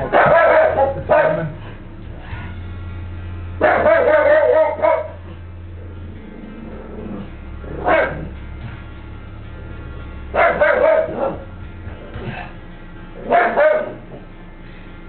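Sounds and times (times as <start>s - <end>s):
dog barking: 0.0s - 1.6s, 3.6s - 5.2s, 7.8s - 8.3s, 10.4s - 11.5s, 13.2s - 14.2s.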